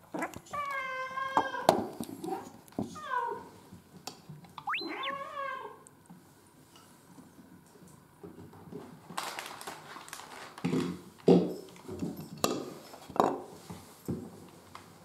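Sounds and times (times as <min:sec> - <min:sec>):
foil food packet crinkling: 0:09.2 - 0:10.6.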